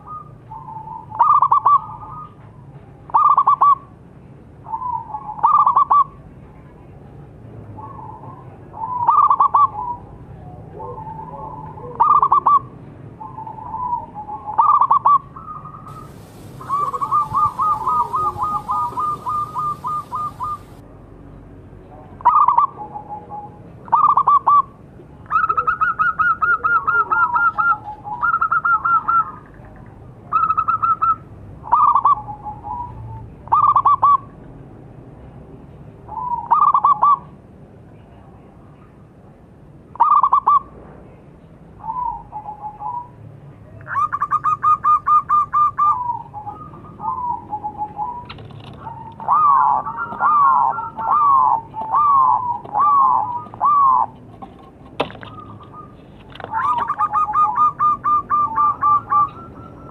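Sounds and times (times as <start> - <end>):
dove cooing: 7.8 - 20.8, 25.3 - 29.3, 31.7 - 34.2, 43.9 - 54.5, 55.2 - 59.9.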